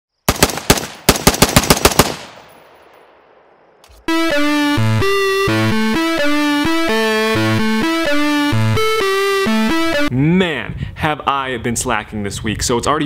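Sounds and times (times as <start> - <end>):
rifle shots echoing: 0.3 - 3.4
synthesizer music: 4.0 - 10.1.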